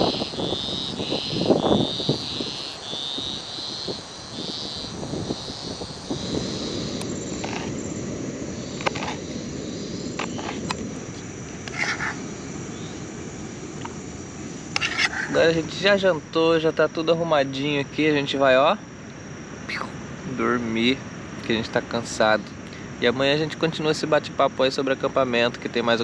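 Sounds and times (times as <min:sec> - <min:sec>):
high chirping call: 0:00.0 - 0:07.6.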